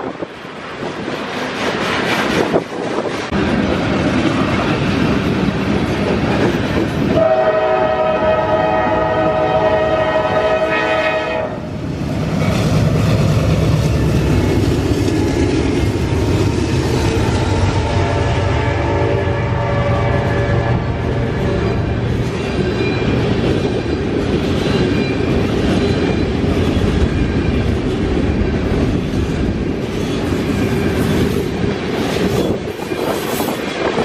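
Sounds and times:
wind buffeting microphone: 0.0s - 10.6s, 11.6s - 34.0s
freight train rumbling on rails: 0.0s - 34.0s
locomotive air horn: 7.2s - 11.7s, 17.8s - 21.0s.

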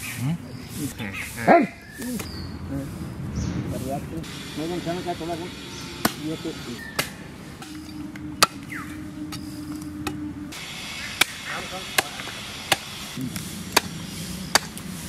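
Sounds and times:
chopper chopping meat on log: 12.0s - 12.9s, 13.7s - 14.8s.

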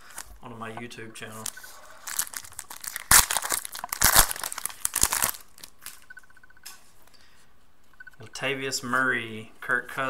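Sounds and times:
foil pack tearing and crinkling: 2.0s - 6.0s.

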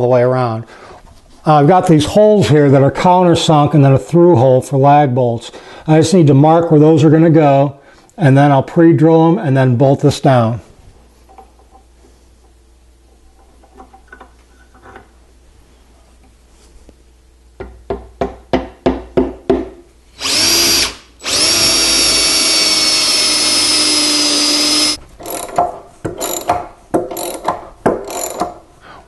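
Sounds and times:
power drill boring into wood: 20.2s - 25.5s.

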